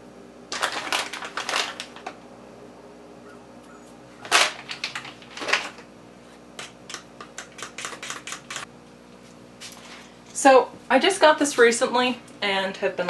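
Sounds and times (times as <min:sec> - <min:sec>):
plastic bag rustling: 0:00.5 - 0:02.2, 0:04.2 - 0:05.9.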